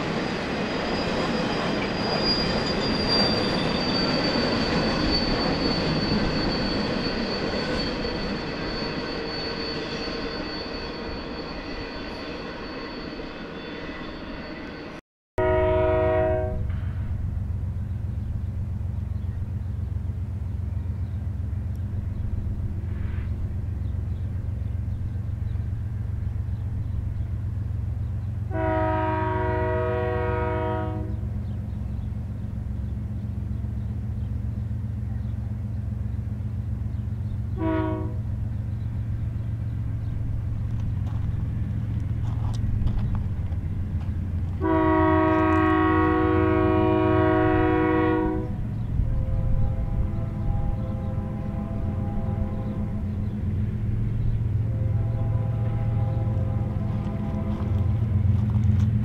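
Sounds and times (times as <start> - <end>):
diesel locomotive engine rumble: 0.0 - 59.0
multi-chime air horn blasts: 28.5 - 31.2, 37.6 - 38.2, 44.6 - 48.5.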